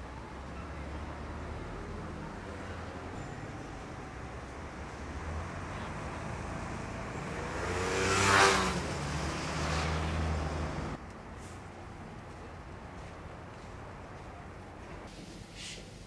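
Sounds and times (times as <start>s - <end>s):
car passing close by: 5.1s - 11.0s.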